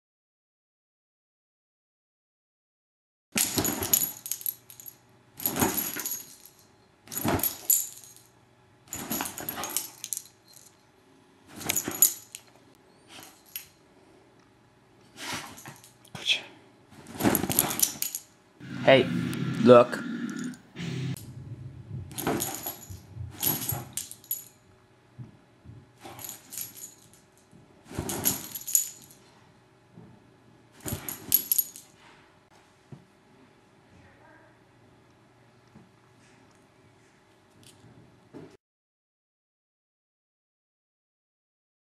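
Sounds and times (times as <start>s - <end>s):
bedding rustling: 3.4s - 4.5s, 5.4s - 6.4s, 7.1s - 8.2s, 8.9s - 10.2s, 11.4s - 12.4s, 16.9s - 18.2s, 22.1s - 24.4s, 27.8s - 29.1s, 30.8s - 32.2s
metal collar tags jingling: 3.4s - 8.3s, 8.9s - 10.9s, 11.6s - 12.5s, 13.1s - 13.8s, 17.3s - 18.3s, 22.2s - 24.6s, 26.1s - 27.4s, 28.0s - 29.2s, 30.8s - 31.9s
collar tags jingling: 8.9s - 10.9s, 11.6s - 12.5s, 22.2s - 24.6s, 26.0s - 27.2s, 28.0s - 29.2s.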